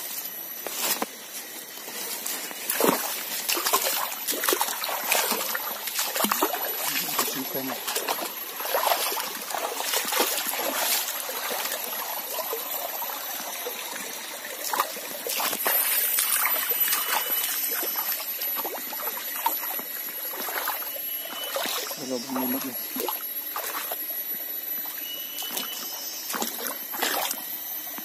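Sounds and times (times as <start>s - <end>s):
footsteps on leaves: 0.0s - 11.9s, 24.8s - 27.3s
stream trickling over rocks: 0.1s - 28.0s.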